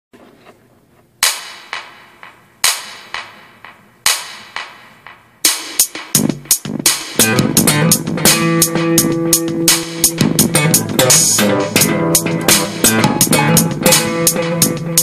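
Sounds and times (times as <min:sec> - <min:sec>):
snare and cymbal hits: 0:01.2 - 0:15.0
bass guitar notes: 0:06.2 - 0:15.0.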